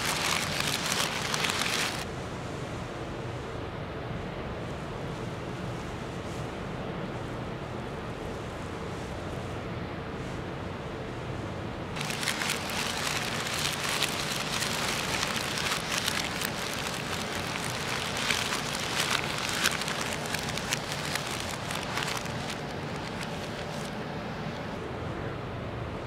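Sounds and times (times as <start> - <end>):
plastic film crinkling: 0.0 - 2.1, 12.0 - 24.0.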